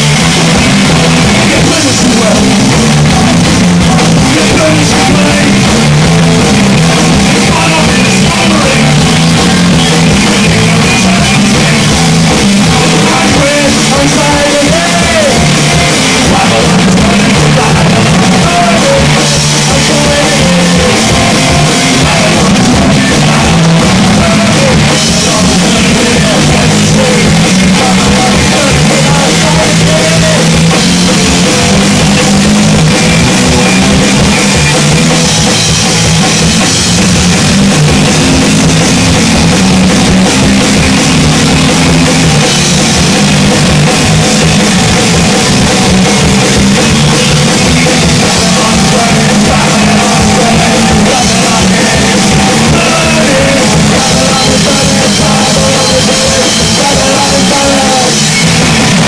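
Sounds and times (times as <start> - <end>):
bass guitar: 0.0 - 59.0
drum kit: 0.0 - 59.0
electric guitar: 0.0 - 59.0
person singing: 0.9 - 33.2, 46.1 - 59.0.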